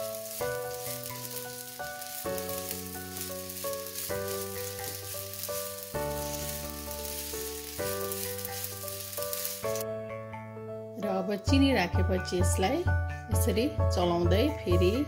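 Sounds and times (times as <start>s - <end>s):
food sizzling in a pan: 0.0s - 9.8s
spatula stirring in a pan: 0.0s - 9.8s
background music: 0.0s - 15.0s.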